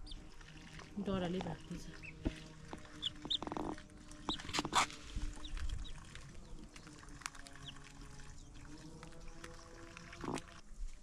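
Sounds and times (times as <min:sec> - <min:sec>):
chickens pecking and scratching grain: 0:00.0 - 0:11.0
chick peeps: 0:03.0 - 0:06.0.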